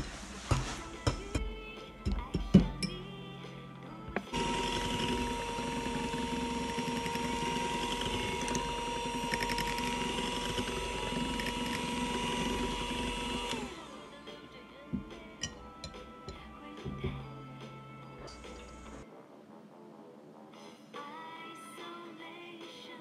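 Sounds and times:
beaters whisking batter in bowl: 0:00.0 - 0:03.1, 0:04.1 - 0:13.8
electric hand mixer whining: 0:02.5 - 0:14.2, 0:14.9 - 0:19.0.

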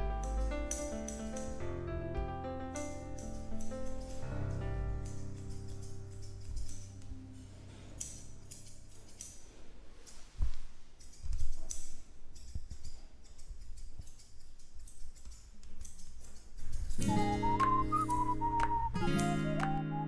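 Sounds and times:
soft background music: 0:00.0 - 0:09.0, 0:17.0 - 0:20.0
scissors snipping hair: 0:00.1 - 0:01.8, 0:02.7 - 0:19.8.

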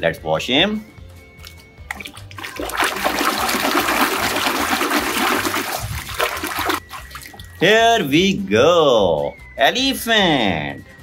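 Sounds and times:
water rushing and splashing: 0:01.9 - 0:07.5.

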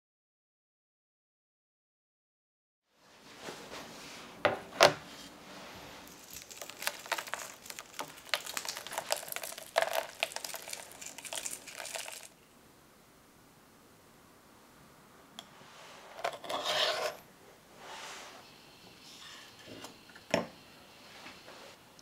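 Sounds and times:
salt crunching between fingers: 0:06.0 - 0:12.4.

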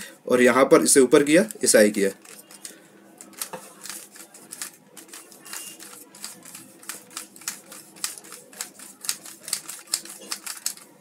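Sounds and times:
puzzle cube clicking: 0:02.2 - 0:10.9.

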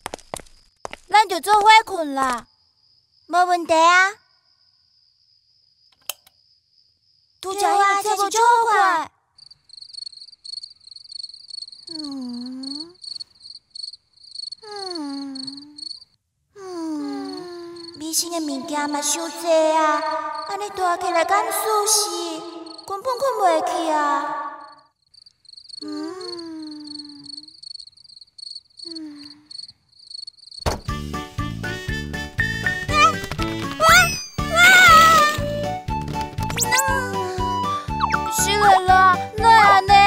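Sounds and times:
crickets chirping: 0:00.0 - 0:16.2, 0:16.8 - 0:30.8
girl groaning: 0:14.6 - 0:15.8, 0:16.6 - 0:22.9, 0:25.8 - 0:27.3.

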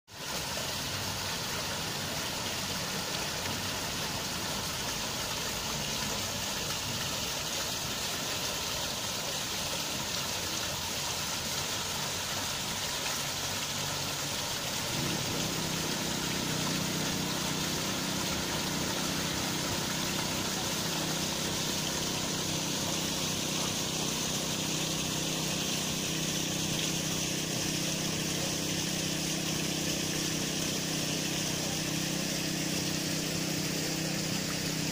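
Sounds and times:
outdoor background hiss: 0:00.1 - 0:34.9
low mechanical hum: 0:14.3 - 0:34.9.

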